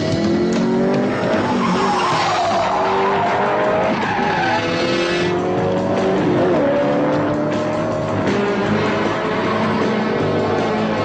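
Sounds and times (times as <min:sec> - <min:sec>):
car tyres squealing: 0:01.1 - 0:05.2.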